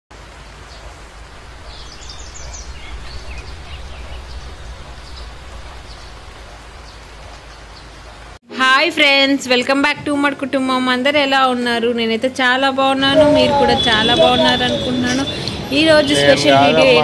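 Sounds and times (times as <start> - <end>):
steady rushing ambience: 0.2 - 8.4
faint bird chirps: 0.7 - 7.9
low rumble: 0.9 - 7.8.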